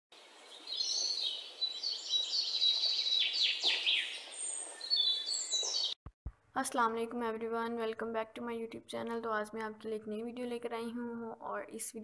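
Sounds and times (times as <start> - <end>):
small birds chirping: 0.2 - 6.0.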